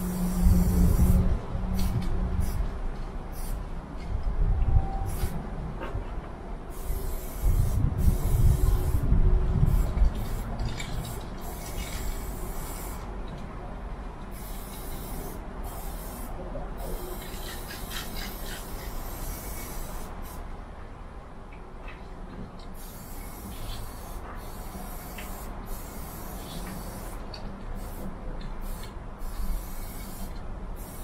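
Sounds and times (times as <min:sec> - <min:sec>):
spray-paint can hissing: 0:00.0 - 0:01.2, 0:01.8 - 0:02.6, 0:03.3 - 0:03.6, 0:05.1 - 0:05.4, 0:06.7 - 0:09.1, 0:09.7 - 0:13.1, 0:14.3 - 0:20.4, 0:22.7 - 0:27.2, 0:27.8 - 0:31.0.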